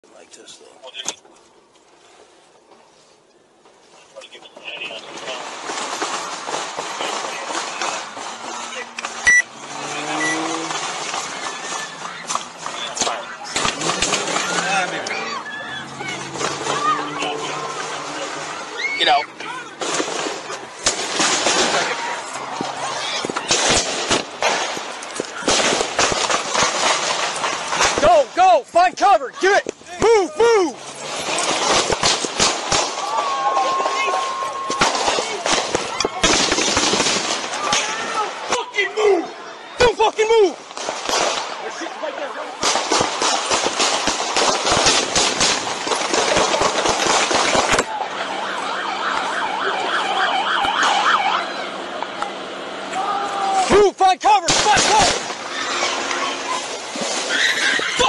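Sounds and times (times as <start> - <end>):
rapid bangs and crackling: 4.9 - 15.2, 15.9 - 28.4, 30.8 - 38.7, 40.0 - 48.2, 54.3 - 58.0
gunshots with echo: 42.6 - 48.0
police siren yelping: 47.9 - 52.0.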